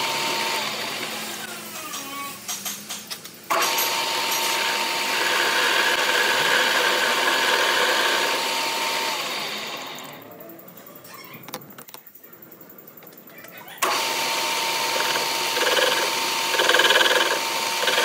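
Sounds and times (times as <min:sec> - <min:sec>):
lathe motor whining: 0:00.0 - 0:01.5, 0:03.5 - 0:10.2, 0:13.8 - 0:18.0.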